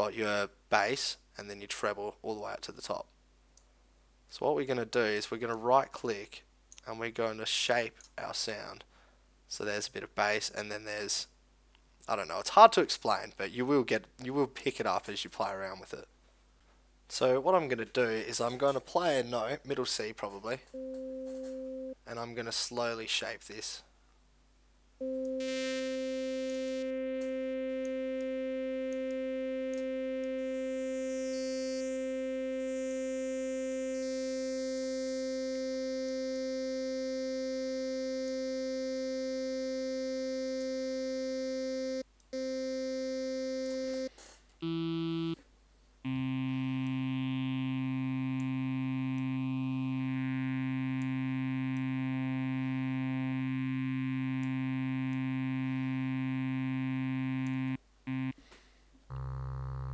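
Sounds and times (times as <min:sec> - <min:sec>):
sustained sawtooth synthesizer note: 0:25.0 - 0:45.4, 0:46.1 - 0:58.3, 0:59.1 - 0:59.9.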